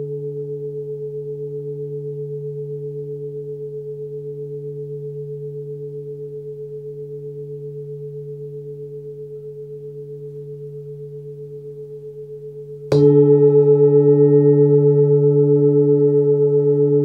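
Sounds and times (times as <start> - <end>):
singing bowl ringing: 12.9 - 17.0.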